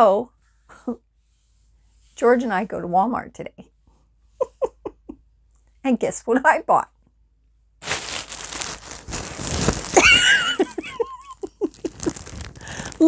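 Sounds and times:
plastic bag crinkling and rustling: 7.8s - 13.0s.

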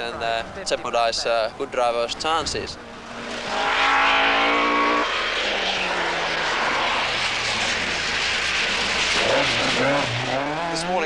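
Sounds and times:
rally car engine revving: 2.8s - 11.0s.

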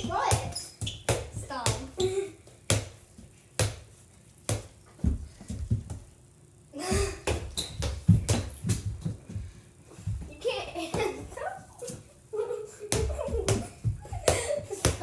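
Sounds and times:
basketball bouncing on hardwood floor: 0.0s - 3.0s, 6.9s - 9.4s, 12.9s - 15.0s.

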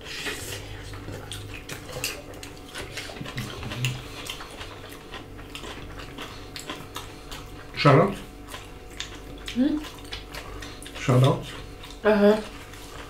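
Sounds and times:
people chewing: 0.0s - 13.0s
biting into raw chili: 0.2s - 13.0s
lip smacks: 8.5s - 11.0s.

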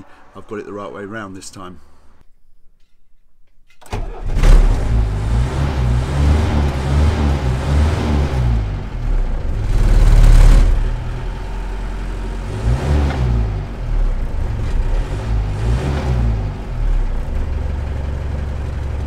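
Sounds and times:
diesel engine revving: 4.1s - 19.0s.

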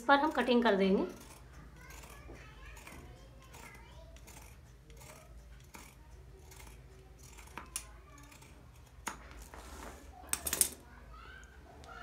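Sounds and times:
scissors cutting cloth: 0.2s - 9.6s
scissor blades clicking: 1.0s - 9.2s.

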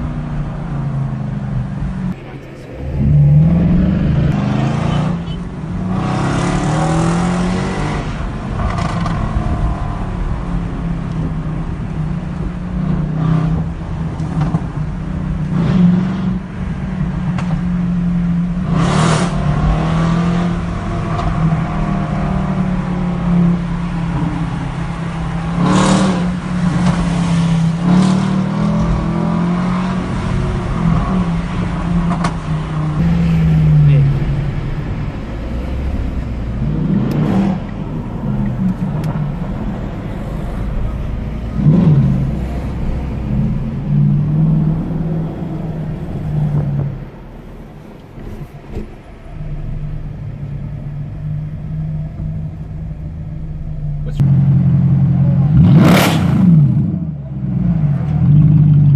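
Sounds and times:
low engine drone: 0.0s - 6.0s, 30.2s - 55.7s
car accelerating hard: 18.5s - 47.1s, 48.2s - 58.9s.

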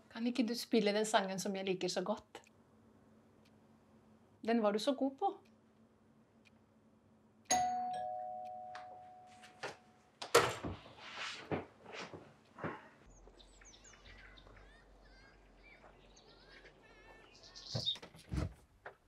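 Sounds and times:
doorbell chime: 7.5s - 9.7s
small birds chirping: 13.1s - 18.4s
sharp knocks and thumps: 17.7s - 19.0s.

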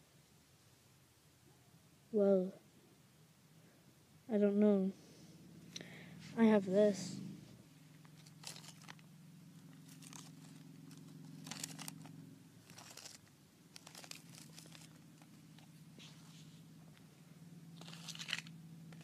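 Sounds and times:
low steady hum: 0.0s - 19.0s
crackling rustles: 7.5s - 17.1s, 17.8s - 19.0s.

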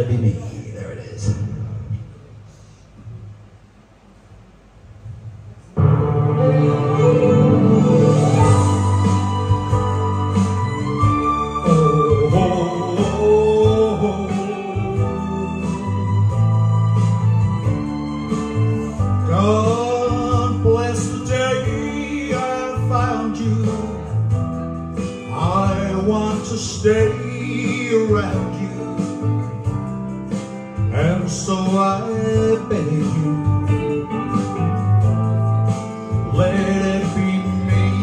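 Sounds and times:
country song with guitar: 6.4s - 38.0s
man singing into microphone: 11.5s - 16.7s, 19.0s - 24.2s, 25.2s - 29.3s, 30.8s - 33.9s, 36.1s - 38.0s.

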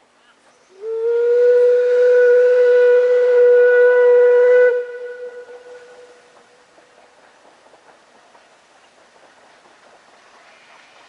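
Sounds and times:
steam locomotive whistle blast: 0.7s - 6.3s.

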